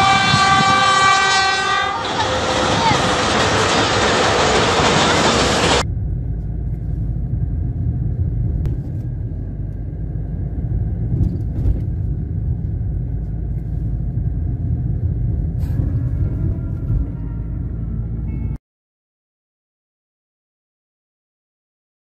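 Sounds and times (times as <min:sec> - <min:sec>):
low rumble: 0:00.0 - 0:18.6.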